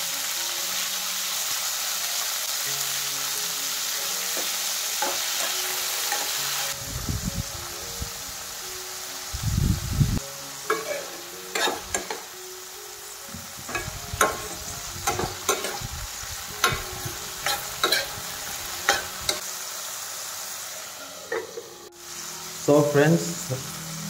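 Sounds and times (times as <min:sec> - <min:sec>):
beans sizzling in oil: 0:00.0 - 0:24.0
ladle scraping and clinking pan: 0:10.7 - 0:12.3, 0:13.6 - 0:15.8, 0:16.6 - 0:18.2.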